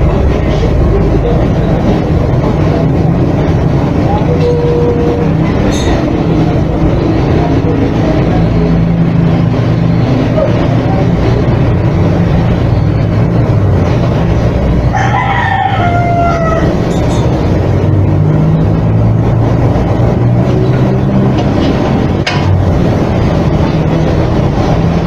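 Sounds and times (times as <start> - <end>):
machine hum and whir: 0.0 - 25.0
rooster crowing: 14.9 - 17.0.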